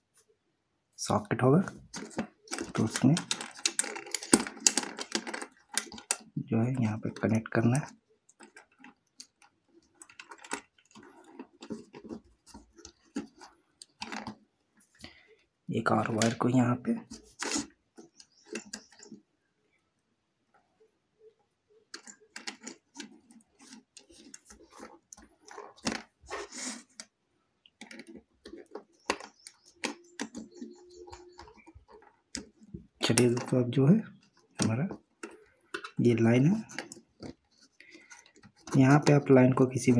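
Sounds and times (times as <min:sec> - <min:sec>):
clicks of wire handling: 0:01.9 - 0:06.4.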